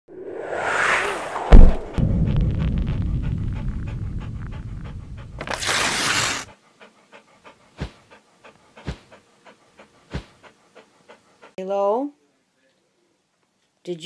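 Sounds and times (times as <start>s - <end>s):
loud whoosh: 0.1s - 5.4s
low rumble: 0.1s - 5.4s
dog panting: 2.9s - 11.6s.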